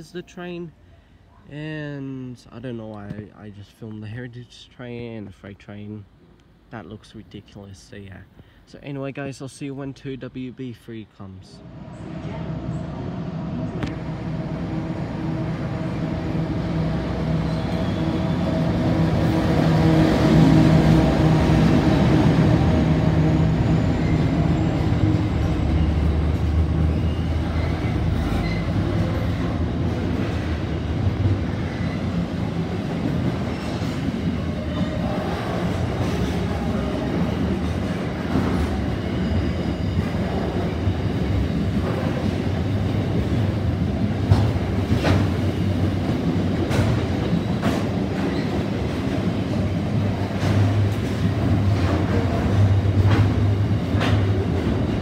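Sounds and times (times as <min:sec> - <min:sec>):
locomotive engine hum: 0:11.6 - 0:55.0
steel wheels rumbling on rail: 0:11.6 - 0:55.0
wheels clacking over rail joints: 0:44.2 - 0:55.0.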